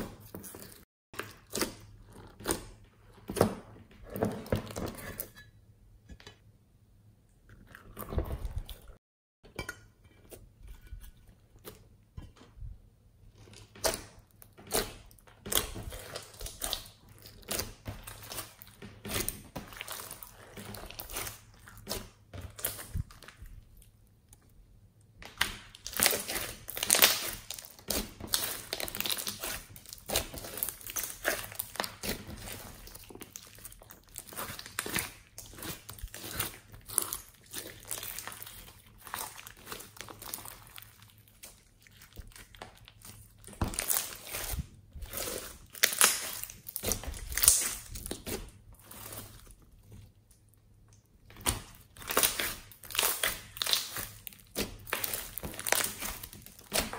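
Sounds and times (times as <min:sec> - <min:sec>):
slime with foam beads crackling: 0:15.4 - 0:23.8, 0:25.3 - 0:49.6, 0:51.4 - 0:56.9.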